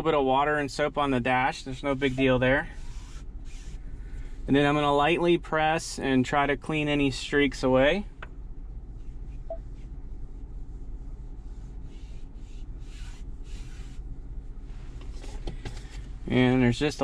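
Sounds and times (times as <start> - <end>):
steady low hum: 0.0 - 17.0
fingertips rubbing on screen: 1.8 - 3.8, 9.0 - 14.0.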